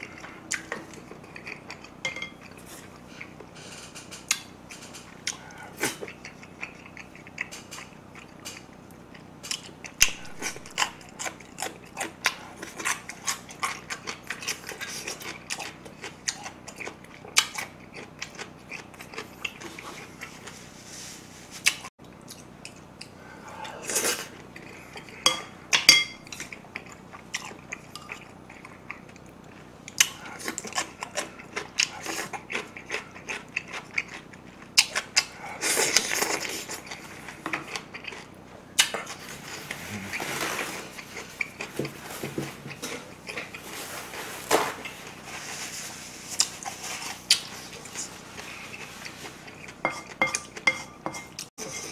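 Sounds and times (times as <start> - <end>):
chopsticks tapping ceramic bowls: 25.2 - 26.4
wet chewing and mouth smacks: 46.4 - 50.6.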